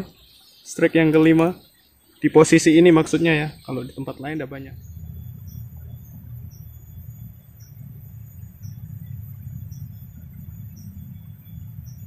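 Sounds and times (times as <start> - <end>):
faint high whine: 0.0 - 12.0
low rumble: 3.2 - 12.0.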